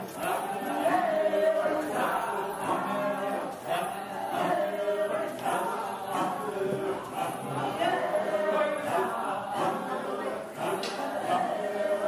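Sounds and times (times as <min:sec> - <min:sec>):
group chanting unaccompanied: 0:00.0 - 0:12.0.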